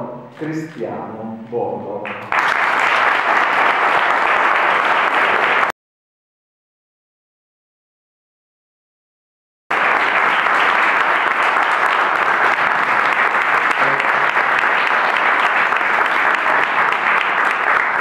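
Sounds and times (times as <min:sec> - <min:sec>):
audience applauding: 0:02.0 - 0:05.7, 0:09.7 - 0:18.0.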